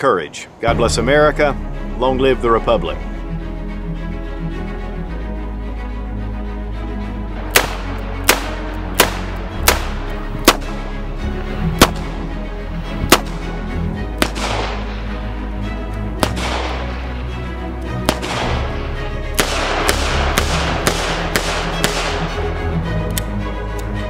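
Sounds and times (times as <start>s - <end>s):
background music: 0.0s - 24.0s
revolver gunshots: 7.5s - 10.8s, 11.8s - 12.1s, 14.2s - 15.0s, 16.2s - 17.0s, 18.0s - 18.8s, 19.4s - 22.4s.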